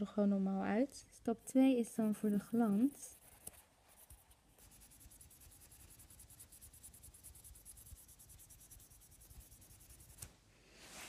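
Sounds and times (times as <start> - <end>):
nail buffer rubbing fingernail: 1.9 - 10.3.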